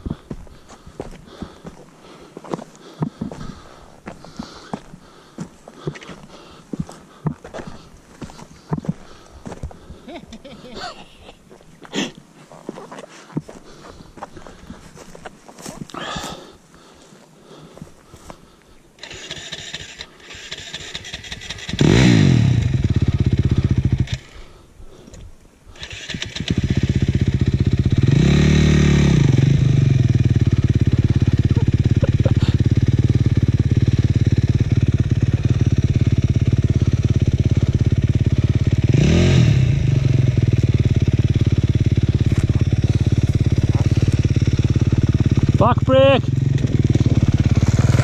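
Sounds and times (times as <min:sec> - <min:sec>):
dirt bike engine revving and idling: 0:19.0 - 0:24.4, 0:25.8 - 0:48.0.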